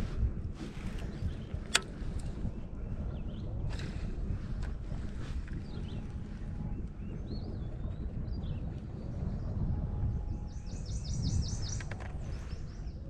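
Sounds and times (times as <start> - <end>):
low wind rumble: 0.0 - 13.0
songbird chirping: 5.5 - 13.0.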